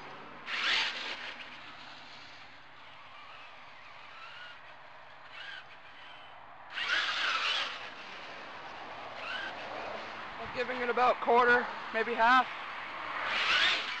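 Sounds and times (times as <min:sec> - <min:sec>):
electric motor whining: 0:00.0 - 0:10.2, 0:13.2 - 0:14.0.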